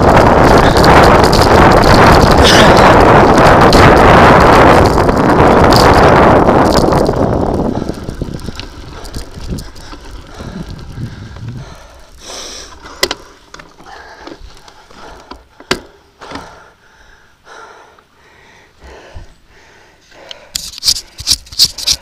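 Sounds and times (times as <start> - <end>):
clicks and rattles: 0.0 - 4.1
wind on microphone: 0.0 - 12.2
tyres crunching on gravel: 0.0 - 14.7.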